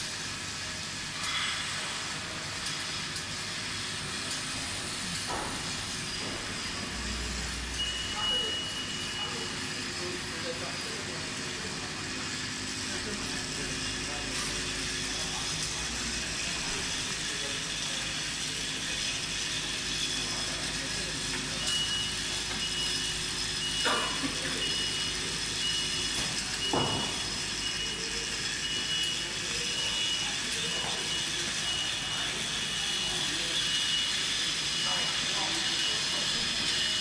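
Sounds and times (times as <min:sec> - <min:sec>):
machinery whirring and hissing: 0:00.0 - 0:37.0
short high beeps: 0:07.0 - 0:09.6.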